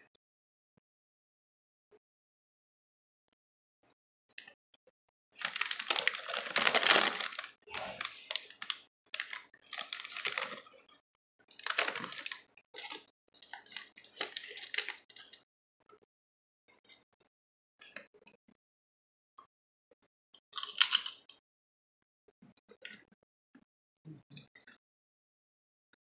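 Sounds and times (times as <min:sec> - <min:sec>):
chip bag crinkling: 0:05.4 - 0:10.9, 0:11.5 - 0:15.4, 0:20.6 - 0:21.2.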